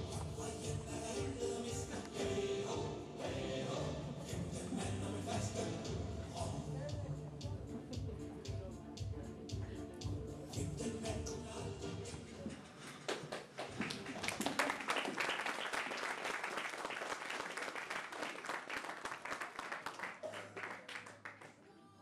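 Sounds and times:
audience applauding: 12.8 - 21.6.

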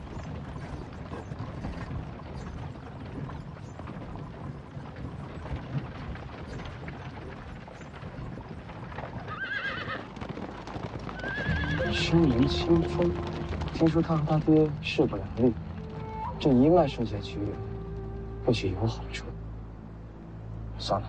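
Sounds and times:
carriage wheels rumbling: 0.0 - 18.8
horse whinnying: 9.2 - 10.2, 11.1 - 14.0.

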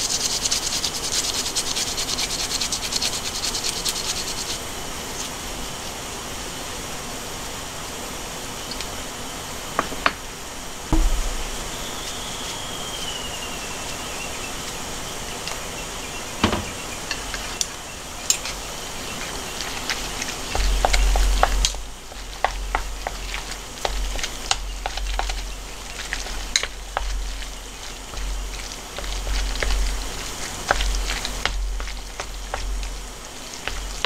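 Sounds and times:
dull bumps from stirring: 10.9 - 11.9, 19.7 - 34.0.

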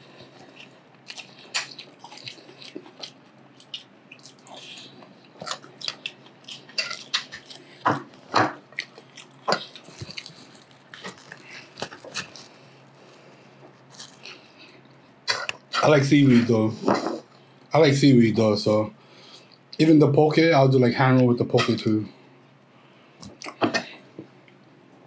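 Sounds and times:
man chewing and smacking: 0.0 - 15.7, 23.2 - 23.6.

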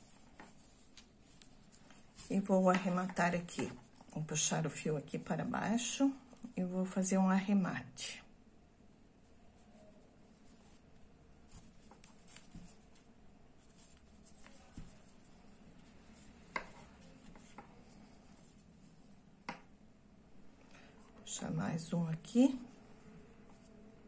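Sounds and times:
yarn rustling and scratching: 9.6 - 19.1.

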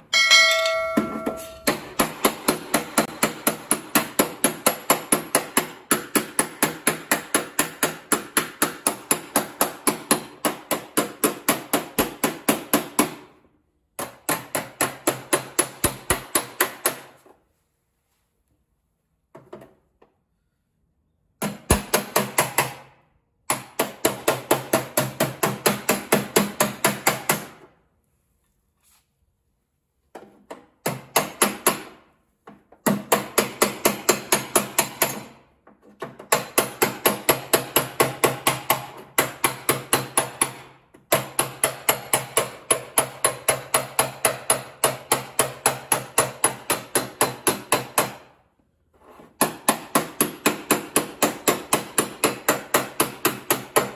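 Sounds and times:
hammer tapping steel: 0.0 - 2.4.

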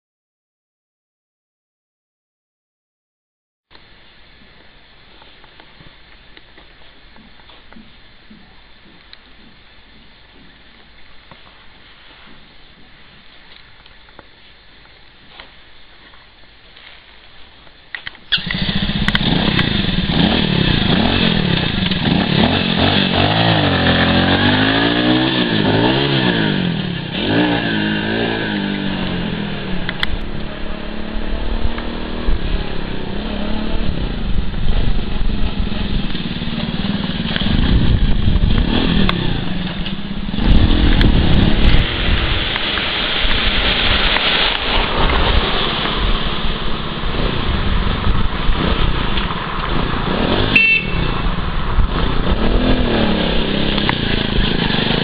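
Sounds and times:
motorcycle engine passing: 18.3 - 55.0.

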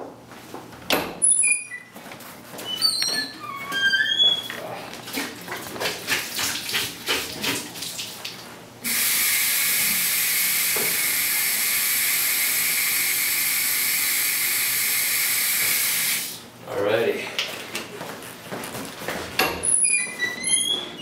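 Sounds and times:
tap water running into sink: 5.2 - 16.3
footsteps on hard floor: 17.5 - 21.0.

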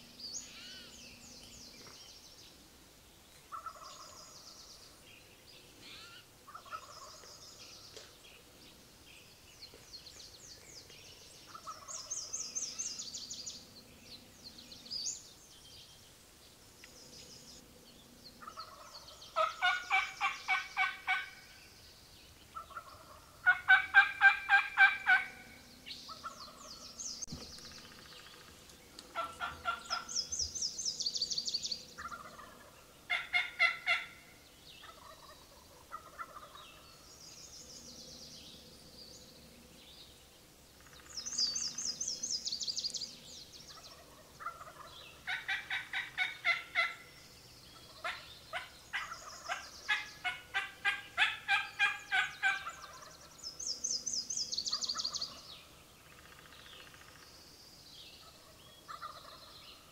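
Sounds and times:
turkeys gobbling: 3.5 - 4.2, 5.9 - 7.2, 11.5 - 12.1, 18.4 - 21.4, 22.6 - 25.4, 26.1 - 26.8, 29.1 - 30.1, 32.0 - 34.2, 34.8 - 36.8, 43.7 - 47.1, 47.8 - 53.1, 58.2 - 59.5.

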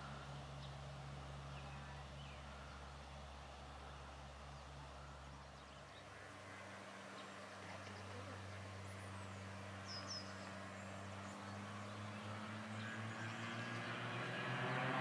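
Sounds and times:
propeller plane engine droning: 0.0 - 15.0
bird chirping: 3.8 - 14.8.

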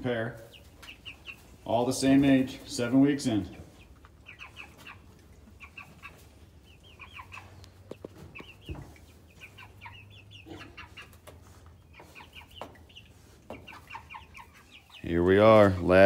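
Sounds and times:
chickens peeping and chirping: 0.0 - 16.0.

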